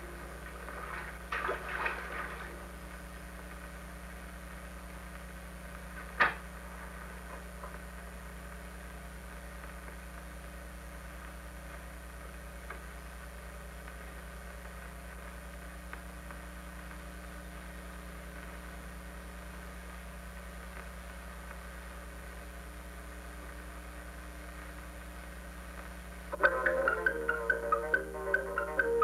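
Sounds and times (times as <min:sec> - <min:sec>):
film soundtrack hum and hiss: 0:00.0 - 0:29.0
faint ticks: 0:09.5 - 0:18.8, 0:19.4 - 0:24.8.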